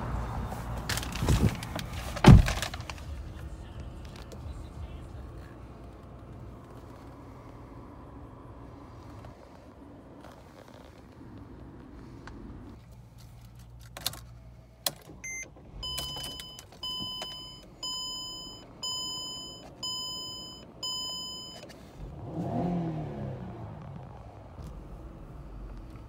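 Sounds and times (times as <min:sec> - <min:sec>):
car engine cranking and starting: 0:00.0 - 0:26.0
ignition clicks: 0:08.8 - 0:26.0
dashboard warning chime: 0:15.2 - 0:21.7.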